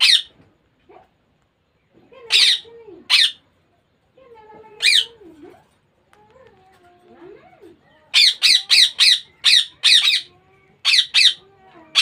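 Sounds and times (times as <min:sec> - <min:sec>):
parakeet chick squawking: 0:00.0 - 0:00.3, 0:02.3 - 0:03.4, 0:04.8 - 0:05.2, 0:08.1 - 0:12.0.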